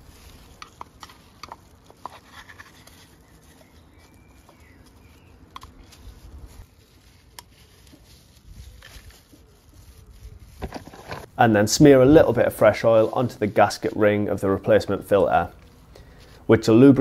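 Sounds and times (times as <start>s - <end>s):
plastic crinkling: 0.0s - 16.5s.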